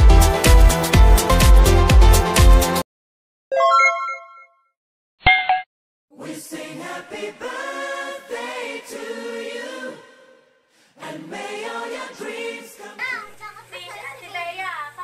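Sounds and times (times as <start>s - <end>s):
voices singing held notes: 6.1s - 13.0s.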